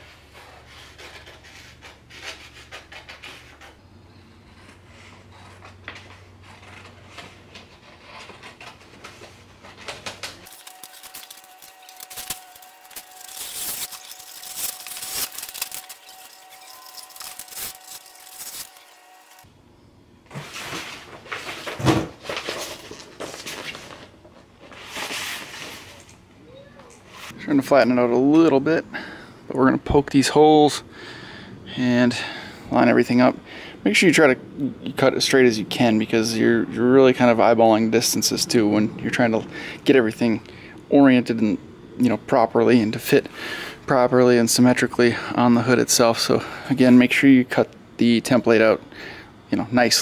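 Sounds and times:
paper rustling and crinkling: 0:05.3 - 0:19.4, 0:20.3 - 0:26.2
loud paper crackle: 0:06.0 - 0:19.4, 0:20.5 - 0:26.2.

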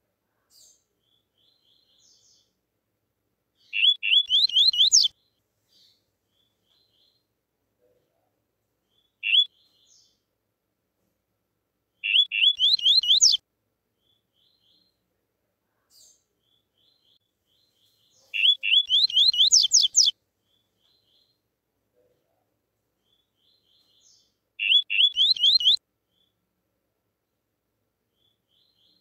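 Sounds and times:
bird whistled song: 0:03.6 - 0:05.1, 0:09.0 - 0:09.9, 0:12.0 - 0:13.4, 0:18.4 - 0:20.1, 0:23.5 - 0:25.8.

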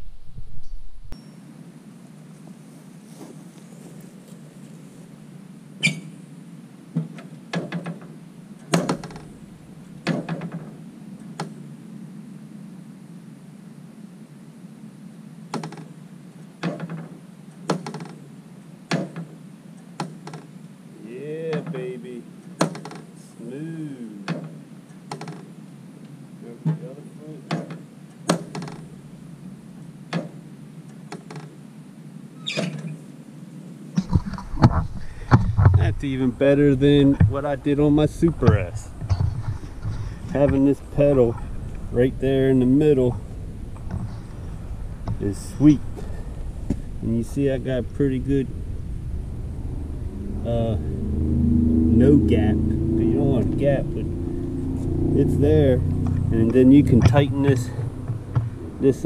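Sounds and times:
mower pedal and flap rattle: 0:07.0 - 0:09.4, 0:10.0 - 0:11.6, 0:16.6 - 0:18.2, 0:24.3 - 0:25.5, 0:27.5 - 0:28.9, 0:30.1 - 0:31.6.

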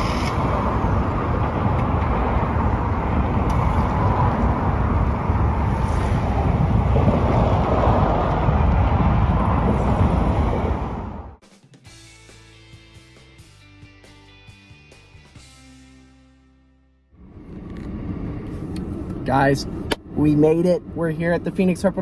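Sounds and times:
freeway traffic roar: 0:00.0 - 0:11.4, 0:17.1 - 0:22.0.

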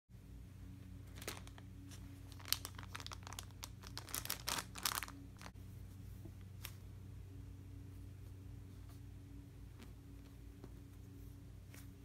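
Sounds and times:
plastic bag crinkling: 0:01.0 - 0:05.6.

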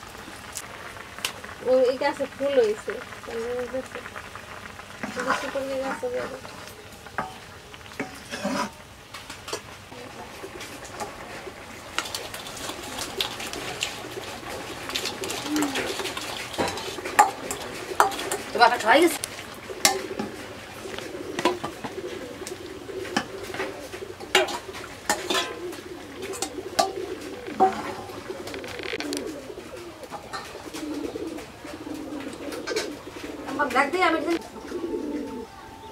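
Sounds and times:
pigeons cooing: 0:09.5 - 0:35.9
ladle scraping and clinking in wok: 0:12.2 - 0:18.6, 0:24.2 - 0:28.1.

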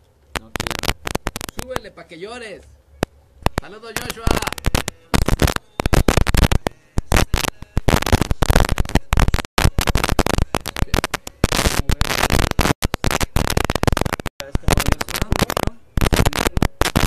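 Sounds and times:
harsh crackling distortion: 0:00.0 - 0:17.0.

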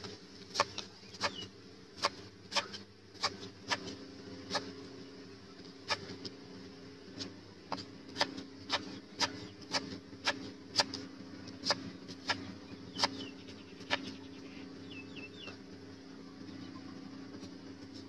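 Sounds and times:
bird chirping: 0:00.6 - 0:01.6, 0:11.4 - 0:17.2.

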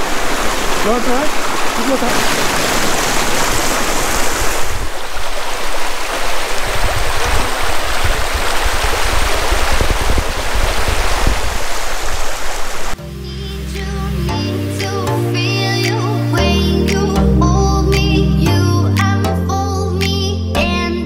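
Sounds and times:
creek water rushing over rocks: 0:00.0 - 0:13.0
music: 0:13.0 - 0:21.0.

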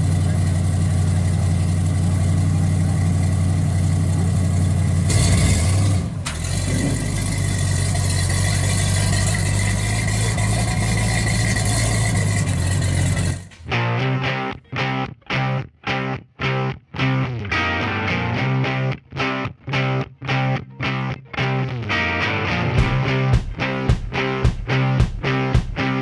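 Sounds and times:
pickup truck engine idling: 0:00.0 - 0:13.6.

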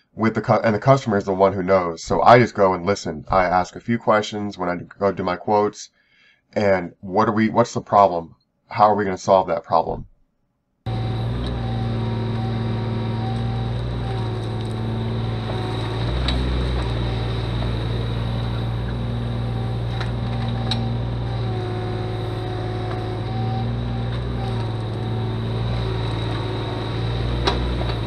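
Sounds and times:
excavator diesel engine running: 0:10.9 - 0:28.0.

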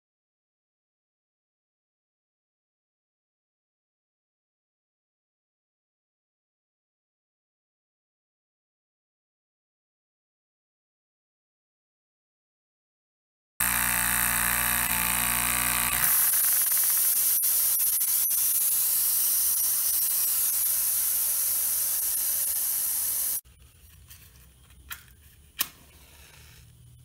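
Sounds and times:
steam boiler hissing: 0:16.1 - 0:23.4.

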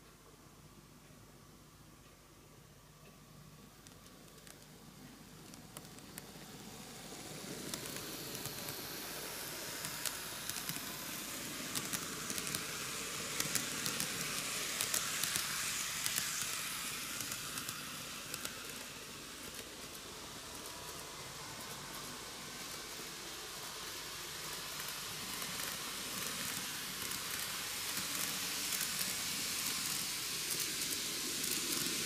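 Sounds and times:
model train whirring: 0:03.6 - 0:32.0.

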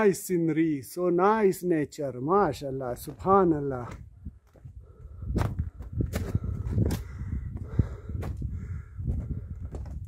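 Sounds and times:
footsteps on rocky ground: 0:02.5 - 0:10.0
microphone handling noise: 0:03.0 - 0:10.0
wind rumble on microphone: 0:03.0 - 0:10.0.

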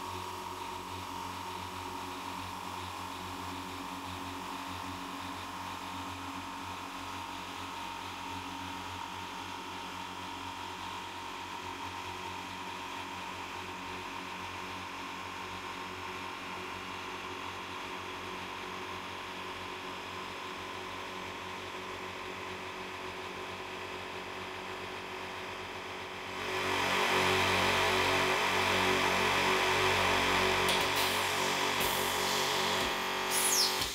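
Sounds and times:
air compressor humming: 0:29.9 - 0:33.9.

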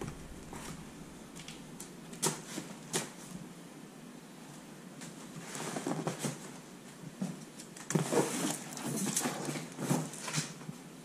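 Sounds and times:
cardboard box rustling and scraping: 0:07.9 - 0:10.6.

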